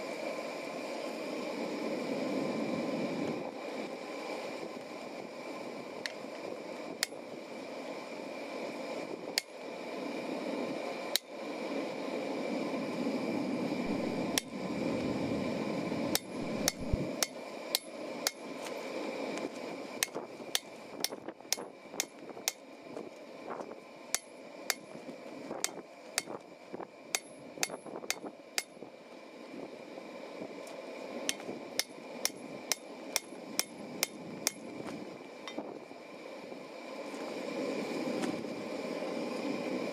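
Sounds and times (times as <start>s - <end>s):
hammer striking steel on anvil: 16.2s - 18.4s, 20.0s - 22.6s, 24.2s - 24.9s, 27.1s - 28.7s, 31.3s - 34.6s.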